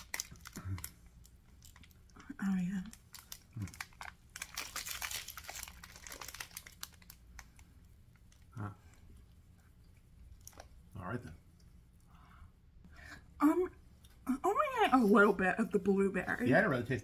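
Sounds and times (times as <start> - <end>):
snack wrapper crinkling and tearing: 0.0 - 8.5.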